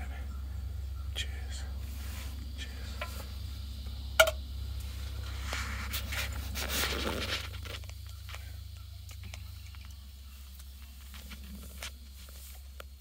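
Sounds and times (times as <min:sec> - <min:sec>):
low rumble: 0:00.0 - 0:12.1
fabric rustling: 0:04.9 - 0:07.8.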